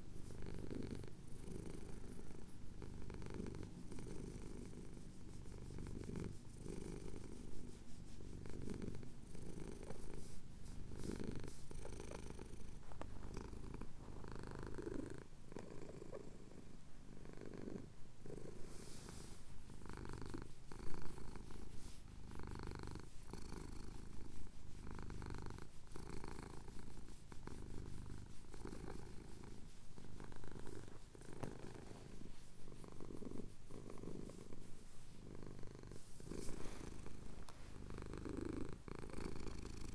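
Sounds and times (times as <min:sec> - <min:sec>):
cat purring: 0:00.0 - 0:39.9.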